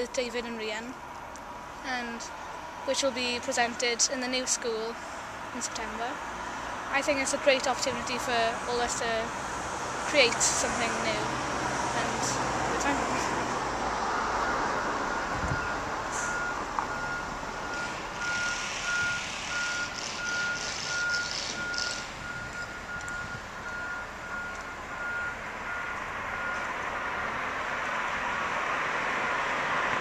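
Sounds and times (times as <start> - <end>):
vehicle reversing alarm beeps: 2.9 - 5.0, 14.0 - 27.3.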